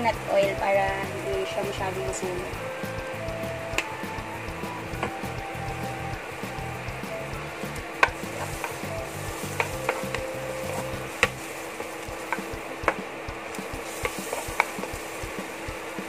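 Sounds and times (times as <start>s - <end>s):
garlic sizzling in a frying pan: 0.0s - 16.0s
spatula scraping a pan: 13.6s - 16.0s.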